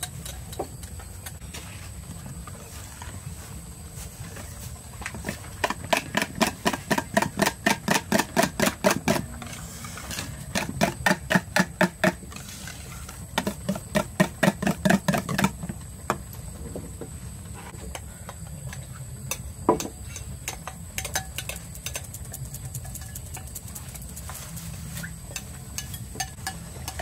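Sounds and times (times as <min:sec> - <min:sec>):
whisk clicking against bowl: 0:20.5 - 0:24.3.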